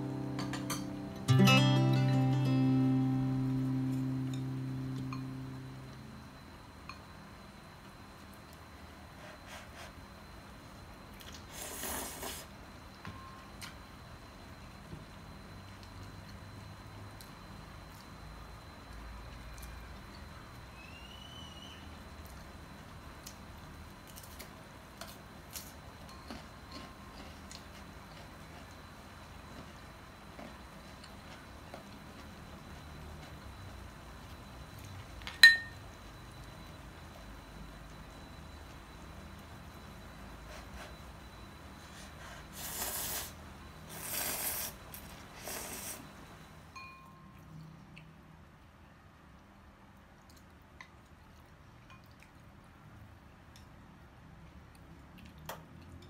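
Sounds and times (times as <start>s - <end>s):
short high chirp-like tone: 0.0s - 7.0s
low steady hum: 0.0s - 56.0s
ceramic bowl clink: 35.3s - 35.8s, 46.8s - 47.3s.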